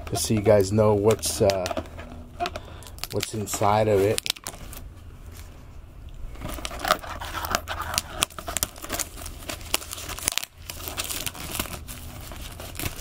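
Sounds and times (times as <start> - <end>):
plastic shrink wrap crinkling: 0.0 - 5.6, 6.3 - 13.0.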